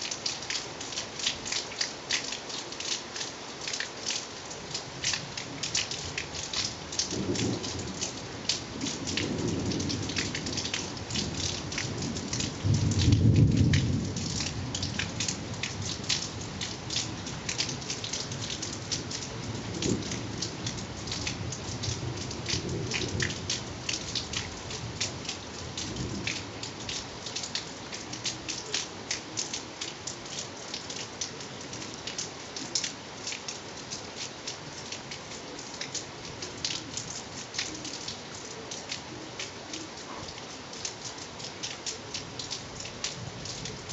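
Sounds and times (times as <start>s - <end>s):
rain drops falling: 0.0s - 43.9s
thunder rumbling: 12.0s - 14.4s.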